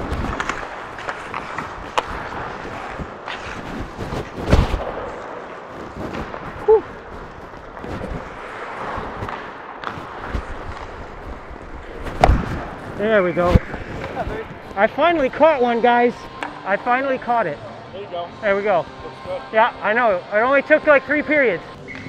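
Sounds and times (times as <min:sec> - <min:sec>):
stick and puck clacks: 0:00.0 - 0:06.6, 0:07.5 - 0:15.4, 0:16.3 - 0:16.7.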